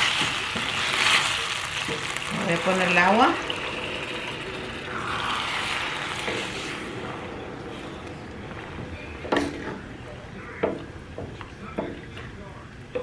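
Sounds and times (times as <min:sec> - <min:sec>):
water hissing in hot pan: 0:00.0 - 0:08.8.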